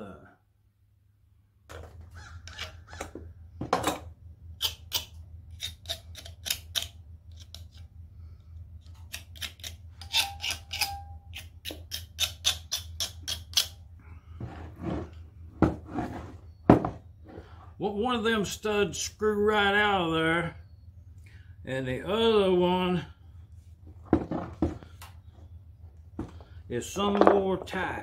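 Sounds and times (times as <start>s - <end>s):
steady low hum: 0.0s - 28.0s
metallic clicks and scrapes: 4.6s - 7.9s, 8.8s - 13.8s.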